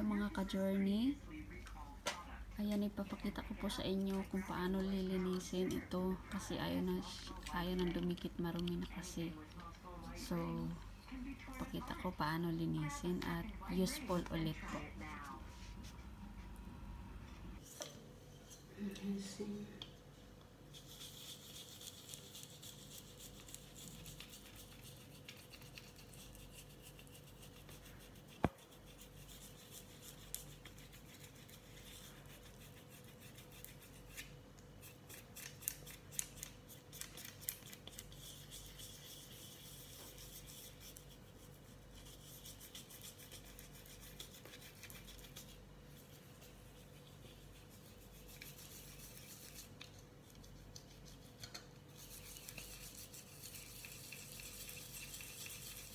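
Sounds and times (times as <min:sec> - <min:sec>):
toothbrush scrubbing rubber: 0:20.6 - 0:55.9.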